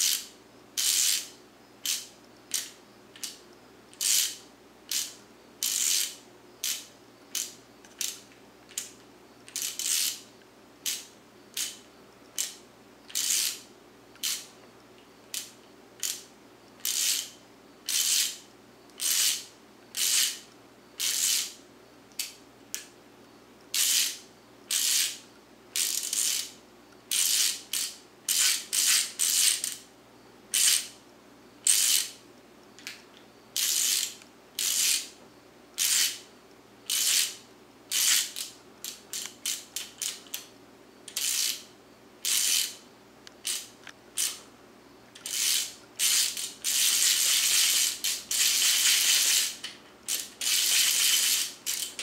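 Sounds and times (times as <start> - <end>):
socket ratchet clicking: 0.0 - 10.2, 10.8 - 11.8, 12.4 - 13.6, 14.2 - 14.5, 15.3 - 17.3, 17.9 - 18.4, 19.0 - 20.4, 23.7 - 25.2, 25.8 - 26.5, 27.1 - 29.8, 30.6 - 30.9, 31.7 - 32.2, 33.6 - 35.1, 35.8 - 36.2, 36.9 - 40.5, 41.1 - 41.6, 42.2 - 44.4, 45.2 - 52.0.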